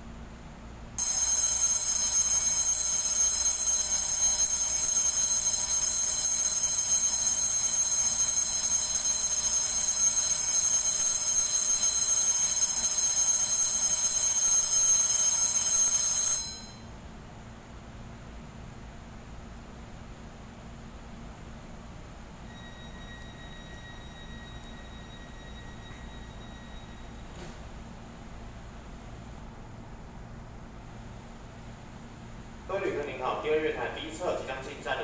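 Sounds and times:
railway departure bell ringing: 1.0s - 17.0s, 22.4s - 27.8s.

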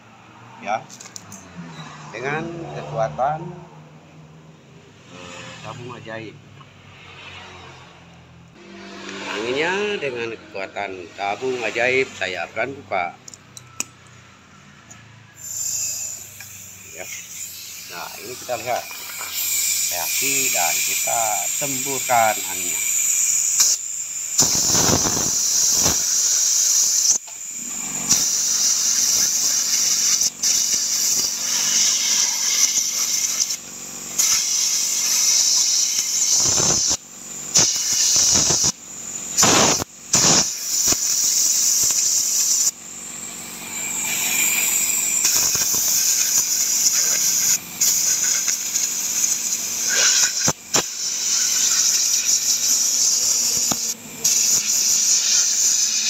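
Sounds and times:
air blow gun hissing: 15.4s - 56.0s.

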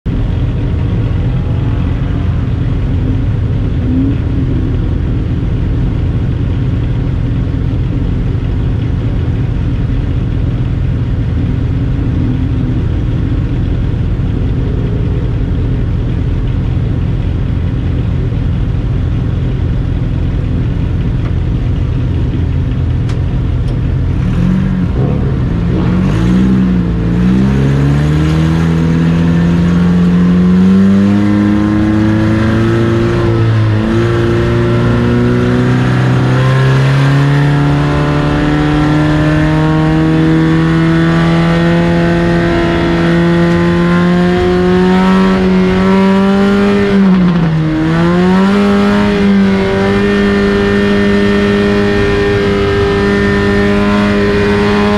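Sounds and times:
race car engines rumbling: 0.0s - 54.9s
engines revving up: 23.6s - 54.9s.

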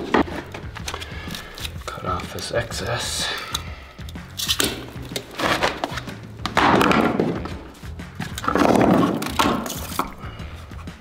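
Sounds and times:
plastic scraping against foam: 5.2s - 6.2s.

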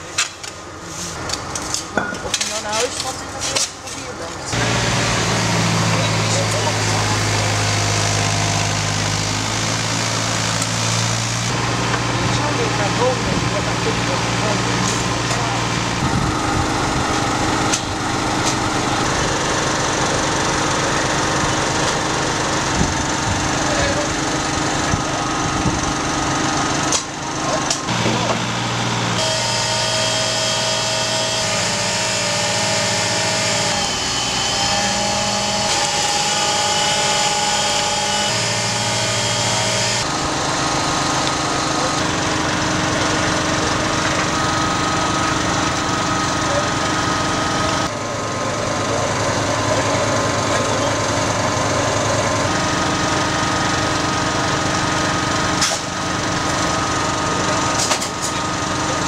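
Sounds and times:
small engine droning: 4.5s - 59.0s.

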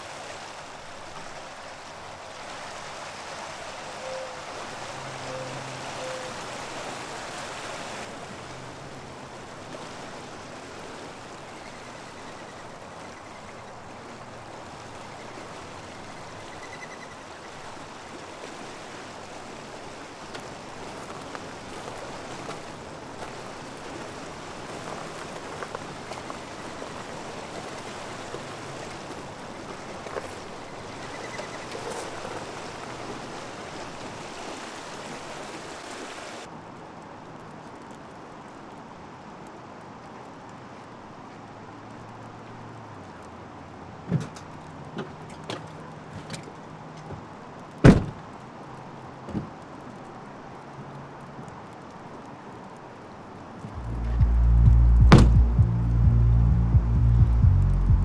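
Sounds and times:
fast-flowing river rushing: 0.0s - 36.6s.

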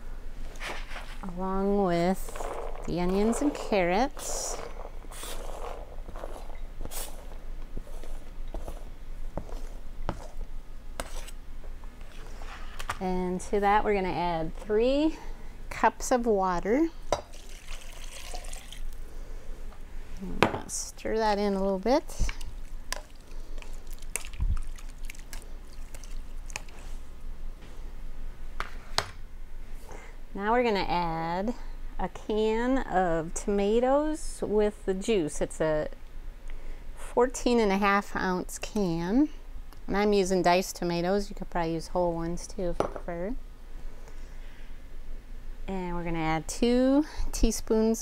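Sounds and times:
wet squelching and sloshing: 22.4s - 26.8s.

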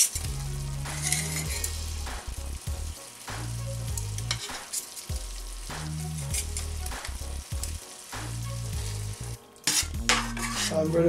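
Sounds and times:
fork scraping metal skewers: 0.0s - 1.8s, 4.0s - 5.1s, 6.1s - 7.8s, 9.6s - 11.0s
sauce sizzling in a pan: 0.0s - 11.0s.

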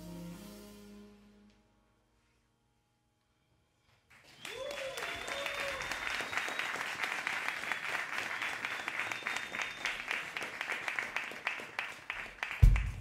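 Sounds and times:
audience clapping: 4.1s - 13.0s
high steady whistle: 4.3s - 7.0s, 7.6s - 10.2s
bass drum hit: 12.6s - 13.0s.

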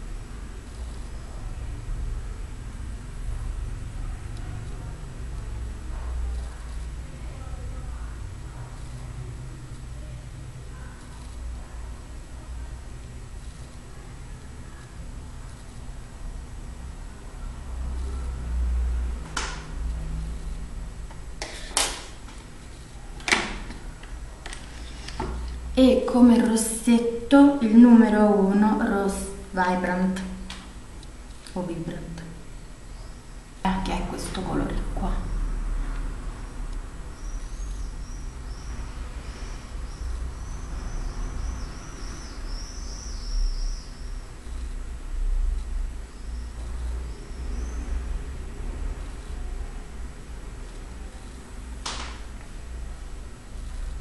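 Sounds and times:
steady low hum: 0.0s - 54.0s
small bird chirping: 37.1s - 44.7s, 46.1s - 48.1s.

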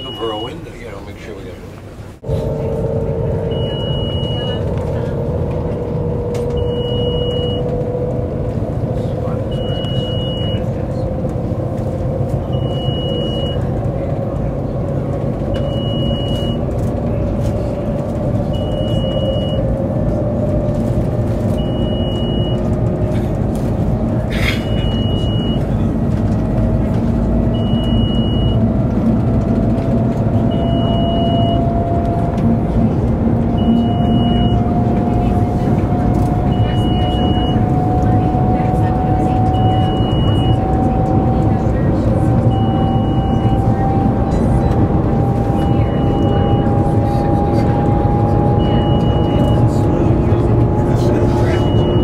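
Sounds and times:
train cabin rumble and rising hum: 0.0s - 52.0s
short high beep: 2.3s - 4.7s, 6.6s - 7.7s, 51.5s - 52.0s.

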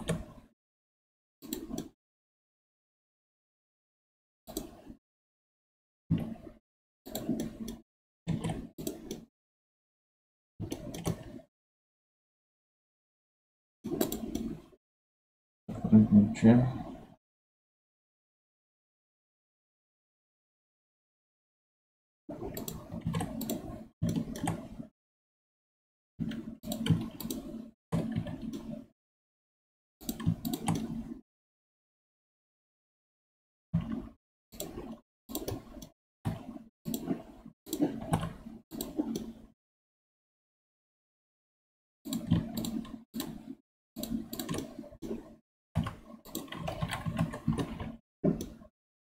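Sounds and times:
keyboard and mouse clicks: 0.0s - 0.4s, 1.4s - 2.0s, 4.5s - 5.0s, 6.1s - 9.3s, 10.6s - 11.5s, 13.9s - 14.8s, 22.3s - 24.9s, 26.2s - 28.9s, 30.0s - 31.2s, 33.8s - 39.5s, 42.1s - 48.7s.

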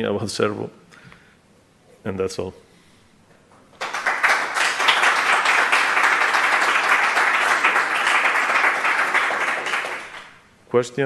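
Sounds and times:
audience applauding: 3.8s - 10.4s.

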